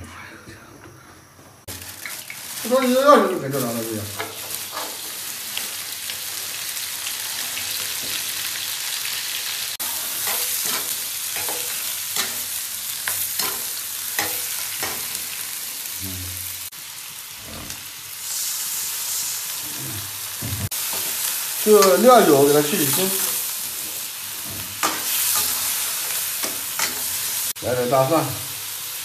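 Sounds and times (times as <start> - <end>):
meat sizzling in a wok: 1.7 - 29.0.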